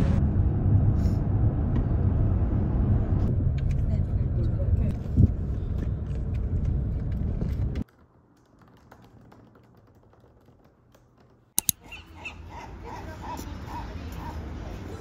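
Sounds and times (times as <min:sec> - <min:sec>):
car road noise rumble: 0:00.0 - 0:07.9
light outdoor background: 0:00.0 - 0:15.0
tapping on laptop keyboard: 0:07.8 - 0:11.8
sharp clicks: 0:10.9 - 0:11.8.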